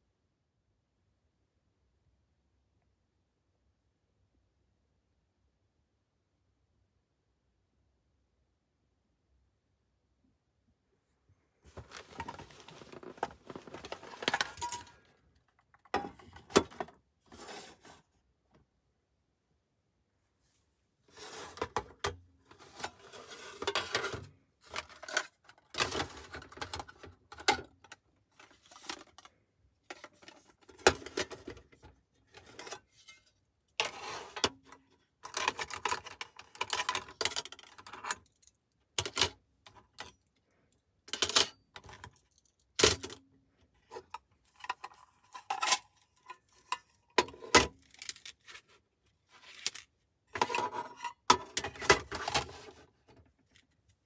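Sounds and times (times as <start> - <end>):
small hard objects clattering: 11.8 - 15.0.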